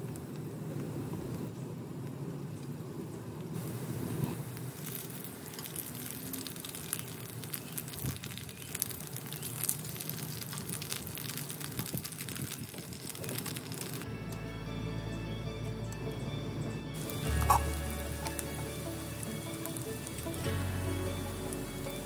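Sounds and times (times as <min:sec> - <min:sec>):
oil spatters crackling: 0:03.6 - 0:14.4, 0:17.0 - 0:22.0
tofu sizzling in oil: 0:04.5 - 0:14.0, 0:17.0 - 0:22.0.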